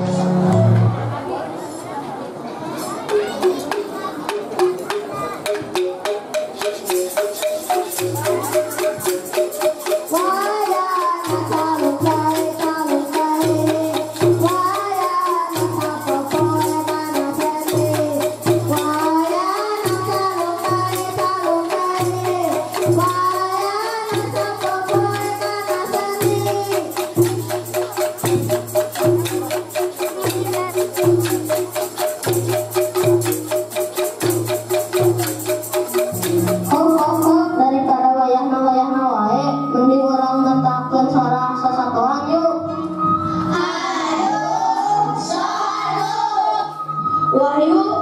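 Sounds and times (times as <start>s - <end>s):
low pulsing bass note: 0.0s - 1.2s
bamboo angklung melody: 0.0s - 1.6s, 2.7s - 47.9s
boy singing into microphone: 8.2s - 27.5s, 36.6s - 42.8s.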